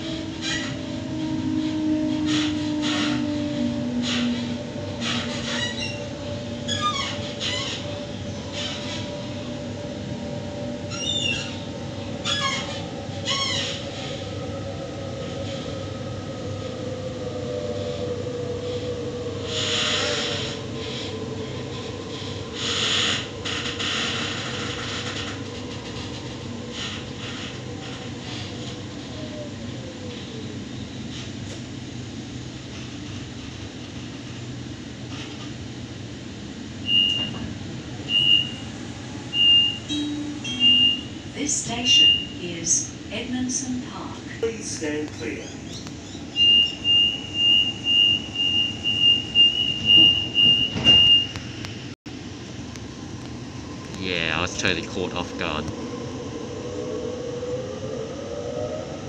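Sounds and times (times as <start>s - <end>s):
train wheels rumbling on track: 0.0s - 59.0s
train door warning beeps: 36.8s - 42.8s, 46.0s - 51.8s.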